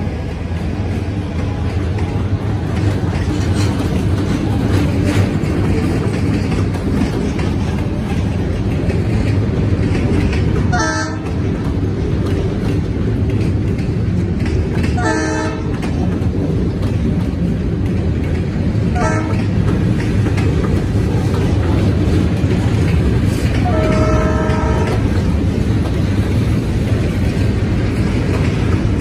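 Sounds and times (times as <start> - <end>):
freight cars rumbling on rails: 0.0 - 29.0
distant locomotive horn: 10.7 - 11.5, 15.0 - 15.8, 18.9 - 19.6, 23.6 - 25.3.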